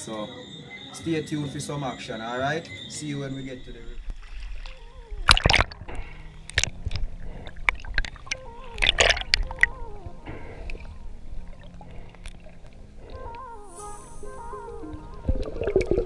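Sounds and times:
water splashing and sloshing: 0:03.3 - 0:16.0
sharp splashes: 0:04.0 - 0:10.9, 0:14.8 - 0:16.0.

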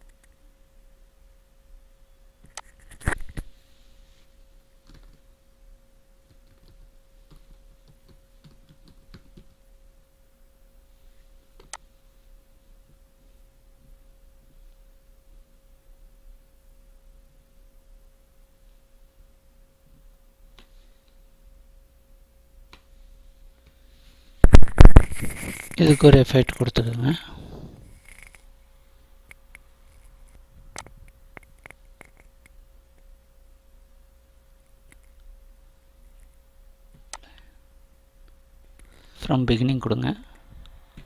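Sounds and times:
faint electrical tone: 0:00.0 - 0:06.2
keyboard typing: 0:04.8 - 0:05.3, 0:06.3 - 0:09.6.

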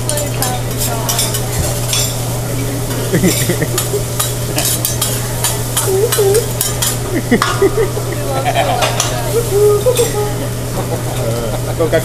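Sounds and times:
rice sizzling: 0:00.0 - 0:12.0
steady low hum: 0:00.0 - 0:12.0
metal spatulas scraping griddle: 0:00.1 - 0:02.2, 0:02.8 - 0:07.0.

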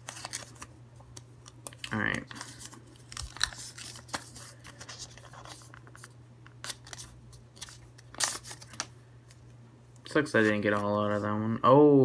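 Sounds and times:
paper crackling and rustling: 0:00.0 - 0:08.9
steady low hum: 0:00.0 - 0:12.0.

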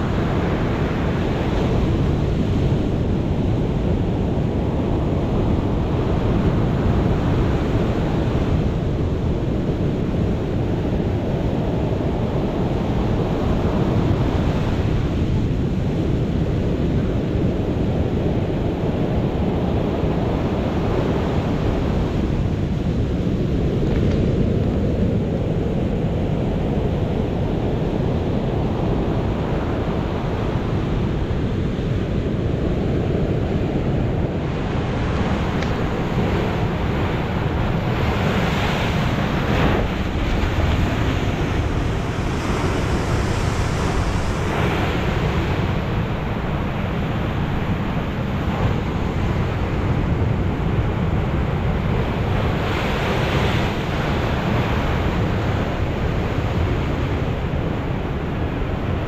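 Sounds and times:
wind buffeting microphone: 0:00.0 - 0:59.0
surf breaking on shore: 0:34.3 - 0:59.0.

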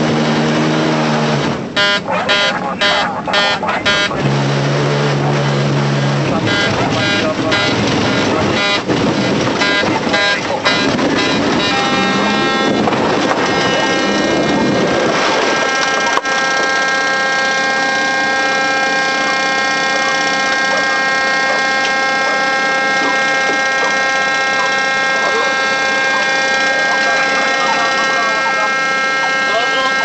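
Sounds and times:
loud rumbling: 0:00.0 - 0:30.0
steady hum of held tones: 0:09.6 - 0:15.0, 0:15.6 - 0:30.0.

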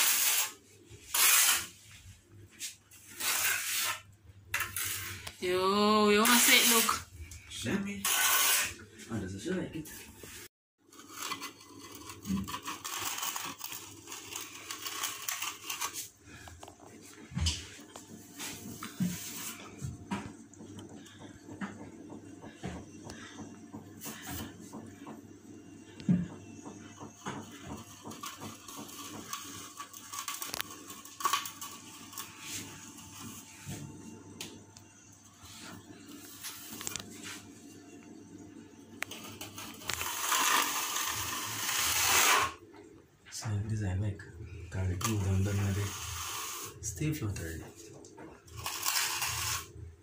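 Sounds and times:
trowel scraping wet mortar: 0:00.0 - 0:01.8, 0:02.9 - 0:05.3, 0:06.2 - 0:07.0, 0:08.0 - 0:08.8, 0:39.8 - 0:42.6, 0:48.6 - 0:49.7
steel float scraping cement: 0:00.0 - 0:02.0, 0:02.6 - 0:05.4, 0:06.1 - 0:08.8, 0:09.9 - 0:16.1, 0:39.2 - 0:42.6, 0:44.8 - 0:46.8, 0:48.5 - 0:49.8.

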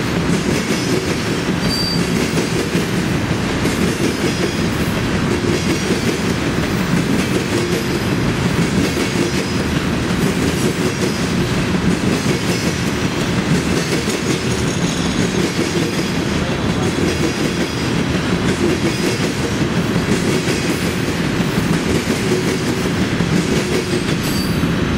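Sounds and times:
wheels clacking over rail joints: 0:00.0 - 0:24.6
freight train rumbling past: 0:00.0 - 0:24.9
high-pitched wheel squeals: 0:01.6 - 0:02.1.

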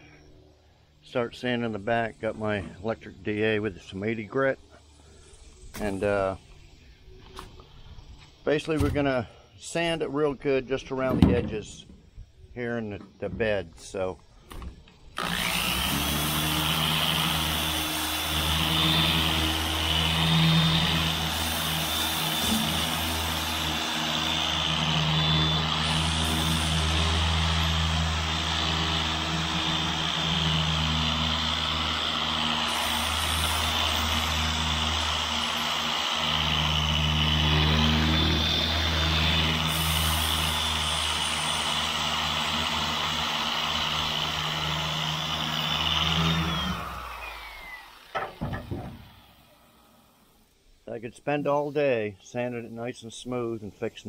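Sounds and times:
electric sander sanding metal: 0:15.0 - 0:49.6.

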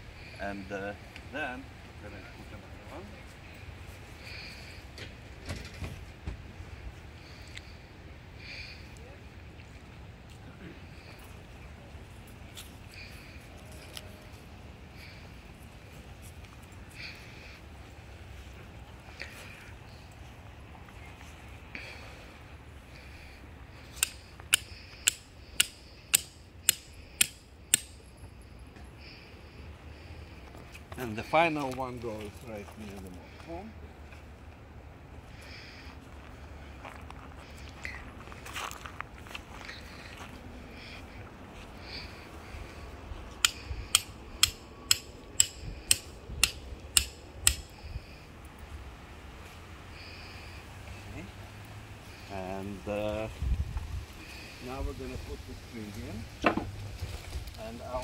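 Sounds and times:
hammer striking metal stake: 0:24.0 - 0:28.0, 0:43.4 - 0:47.7.

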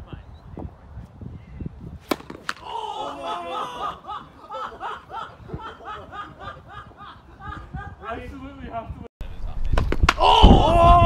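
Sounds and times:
racquet smacking tennis ball: 0:02.0 - 0:02.7
people laughing: 0:02.7 - 0:08.3.

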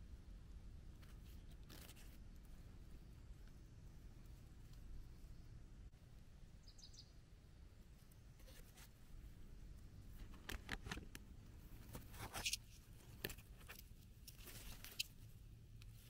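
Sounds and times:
leaves and twigs rustling: 0:01.0 - 0:05.3, 0:07.9 - 0:16.0.

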